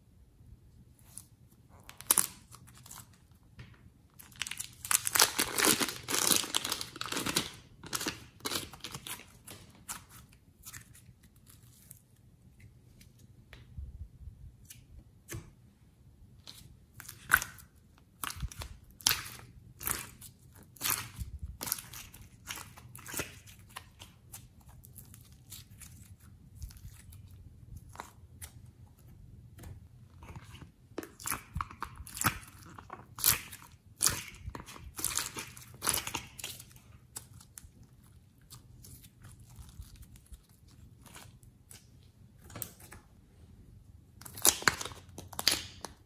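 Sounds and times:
plastic bag crinkling and tearing: 4.2 - 9.7.

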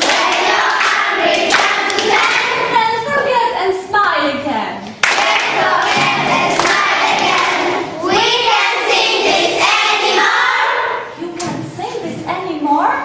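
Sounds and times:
crowd of children's voices: 5.0 - 13.0.

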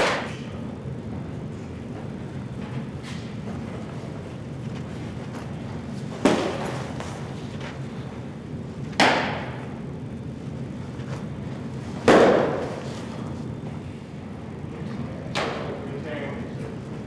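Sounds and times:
baseball smacking into leather gloves: 12.0 - 12.8.

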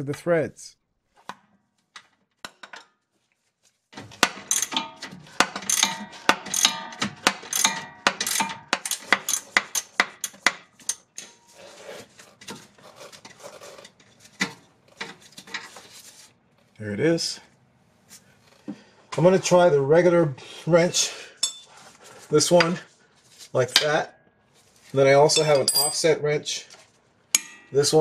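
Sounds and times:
metal tools clanking: 4.2 - 11.6, 21.4 - 21.7, 25.2 - 26.2.

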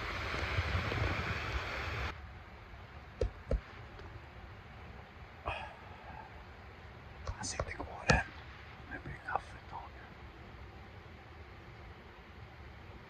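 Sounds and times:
wind buffeting microphone: 0.0 - 2.1.

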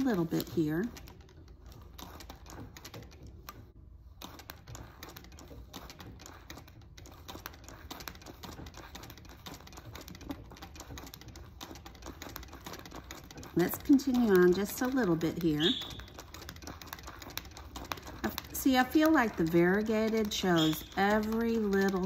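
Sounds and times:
sewing machine clicking: 4.4 - 22.0.

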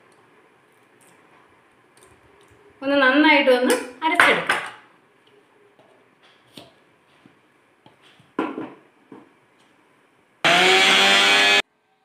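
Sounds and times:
grinder motor whining: 10.4 - 11.6.

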